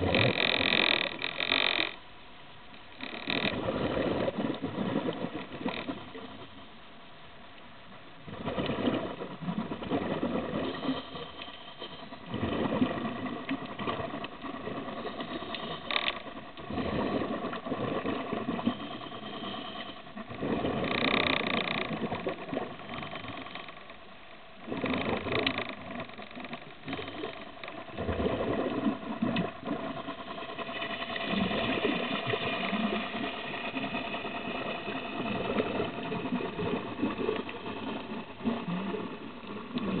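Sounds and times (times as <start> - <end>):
faint steady hum: 0.0 - 40.0
exhaled bubbles rumbling: 3.5 - 6.5, 8.2 - 11.2, 12.2 - 15.6, 16.6 - 19.3, 20.2 - 23.3, 24.6 - 40.0.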